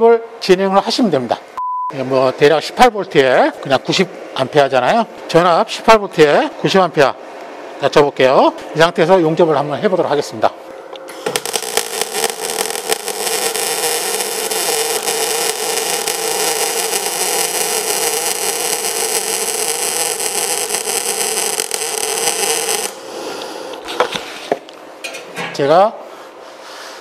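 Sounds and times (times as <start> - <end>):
welding arc crackling hiss: 11.1 - 24.4.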